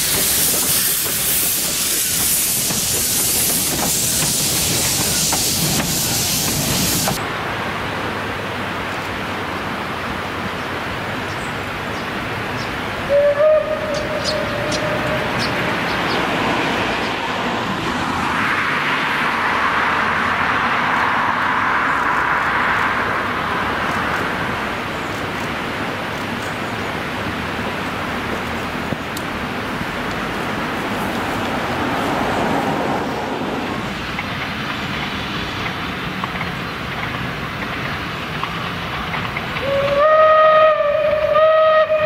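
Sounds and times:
train running on bridge: 0.0s - 42.0s
steam locomotive whistle: 13.1s - 15.5s, 39.6s - 42.0s.

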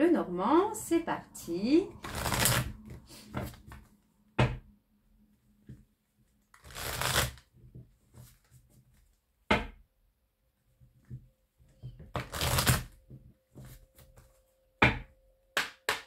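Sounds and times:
cards shuffled by hand: 2.0s - 3.9s, 6.5s - 7.5s, 12.1s - 13.0s.

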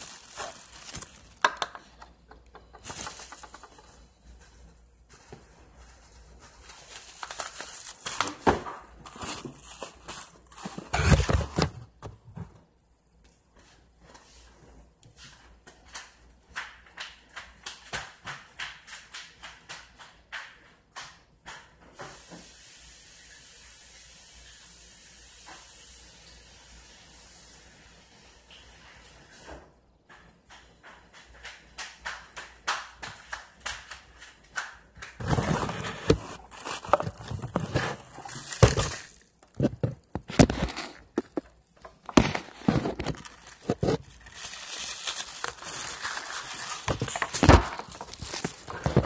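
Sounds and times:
slime squelching and popping: 36.0s - 49.0s.

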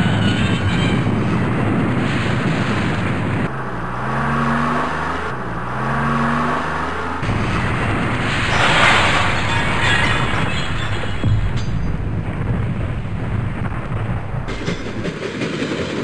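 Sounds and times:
loud dense rumbling: 6.9s - 15.2s.

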